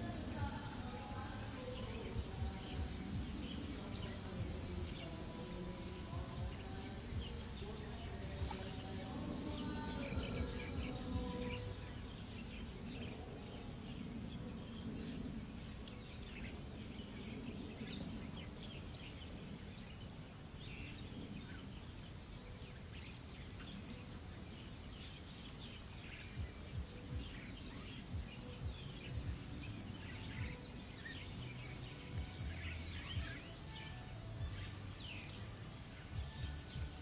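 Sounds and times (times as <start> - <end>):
soft low thumps: 0.0 - 12.1, 25.6 - 37.0
small birds chirping: 0.0 - 37.0.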